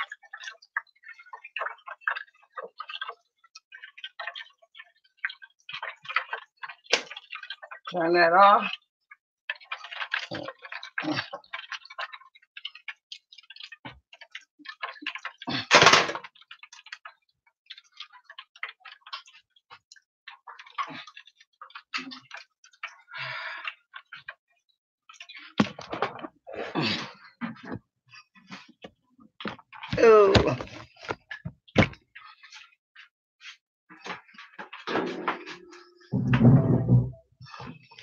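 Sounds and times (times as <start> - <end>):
kitchen items clattering: 15.7 - 16.2, 34.9 - 37.6
knocks and rustles: 34.9 - 37.8.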